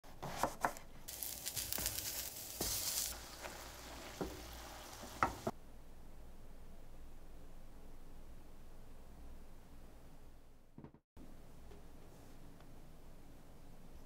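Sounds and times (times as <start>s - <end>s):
eggplant sizzling in frying pan: 1.1s - 5.6s.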